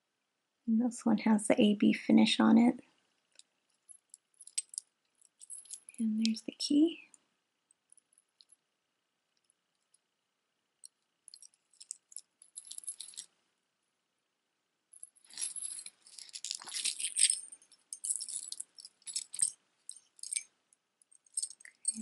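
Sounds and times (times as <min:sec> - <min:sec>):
necklaces jingling and clinking: 0:03.3 - 0:06.9, 0:10.8 - 0:13.3, 0:14.9 - 0:20.5, 0:21.1 - 0:22.0.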